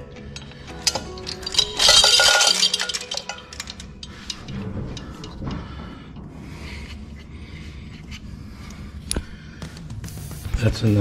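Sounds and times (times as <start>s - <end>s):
metal clinking and rattling: 0.0s - 6.2s.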